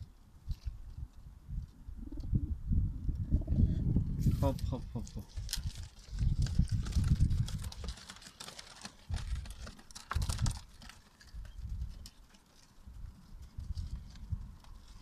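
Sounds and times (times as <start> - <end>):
pigeons pecking seeds: 4.5 - 15.0.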